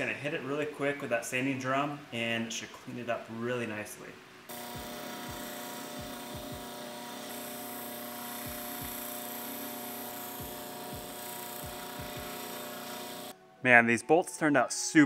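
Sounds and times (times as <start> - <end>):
bench grinder motor hum and whine: 4.5 - 13.3.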